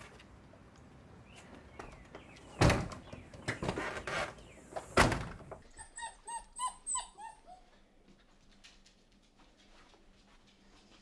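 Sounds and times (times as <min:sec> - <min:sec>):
door thuds: 0:02.6 - 0:03.2
puppy whimpering: 0:05.7 - 0:07.7.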